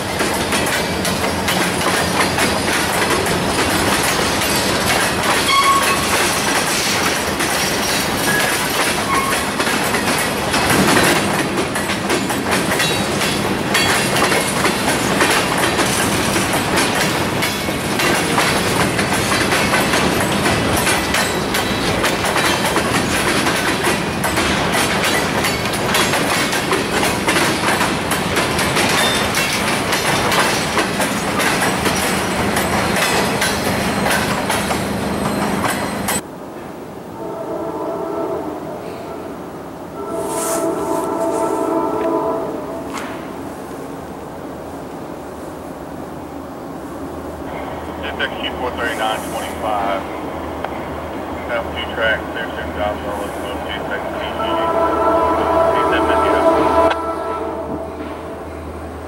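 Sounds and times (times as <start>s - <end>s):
freight train wheels clacking: 0.0s - 36.2s
short high-pitched squeaks: 5.4s - 6.2s.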